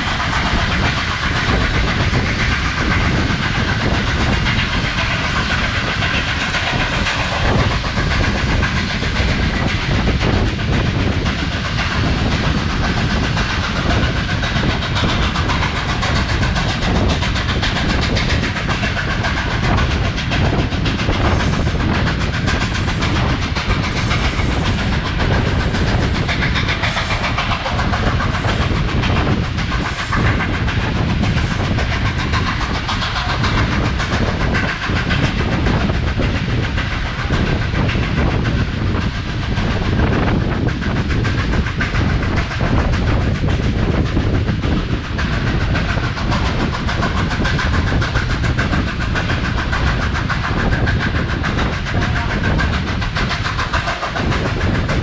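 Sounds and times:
locomotive steam: 0.0 - 55.0
train wheels rumbling on rails: 0.0 - 55.0.

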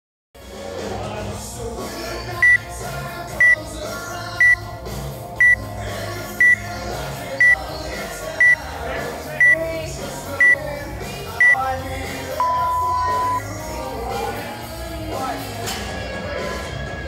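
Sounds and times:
background music: 0.4 - 17.0
timer beeping: 4.4 - 4.6, 5.4 - 5.6, 6.4 - 6.6, 7.4 - 7.6, 12.4 - 13.5.

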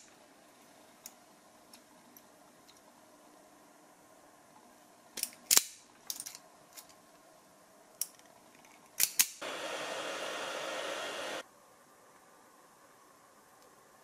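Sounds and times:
heat gun blowing: 9.4 - 11.4.

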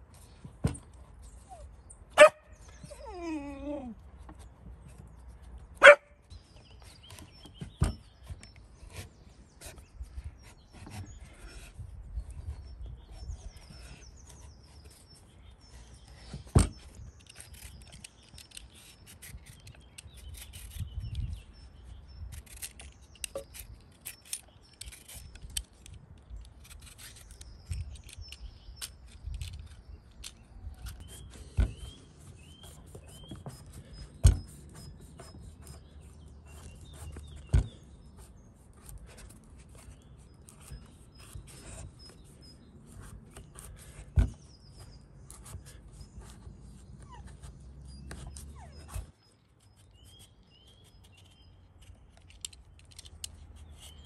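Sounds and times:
small ticks and scraping: 13.4 - 47.5, 48.1 - 54.0
faint bird chirps: 26.7 - 52.4.

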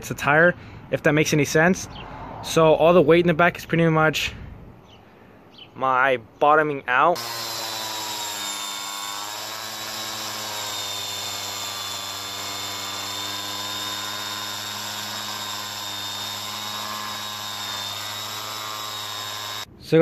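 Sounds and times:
angle grinder whining: 7.2 - 19.7.

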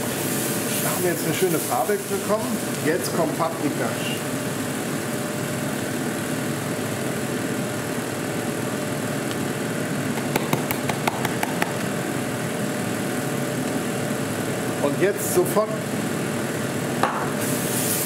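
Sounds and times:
onions sizzling in pot: 0.0 - 7.7, 17.1 - 18.0
spice shaken from container: 10.2 - 12.0.

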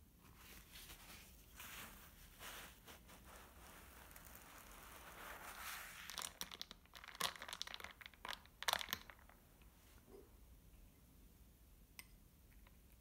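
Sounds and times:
paper napkin wiping table: 0.4 - 6.1.

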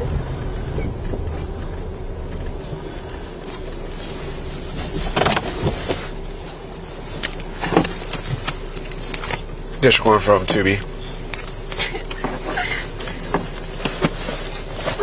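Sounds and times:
car road and engine rumble: 0.0 - 15.0
sharp clicks and knocks: 5.1 - 6.0.

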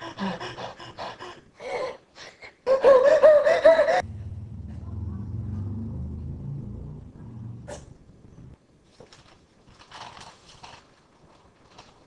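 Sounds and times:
low steady rumble: 4.0 - 8.6.

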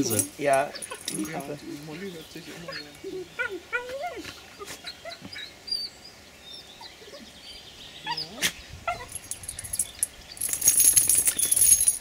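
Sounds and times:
harness and collar jingling: 0.0 - 2.8, 8.9 - 12.0.

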